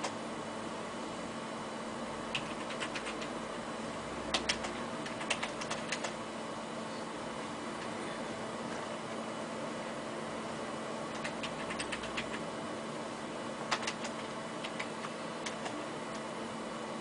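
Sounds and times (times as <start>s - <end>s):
cooling fan humming: 0.0s - 17.0s
sharp clicks: 2.3s - 3.3s, 4.3s - 6.2s, 11.1s - 12.4s, 13.7s - 16.2s.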